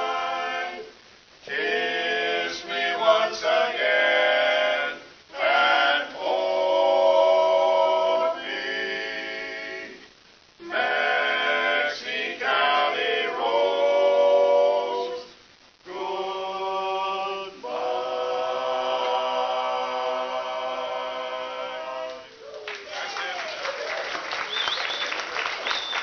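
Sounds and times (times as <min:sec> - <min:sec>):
barbershop quartet singing a cappella: 0:00.0 - 0:22.5.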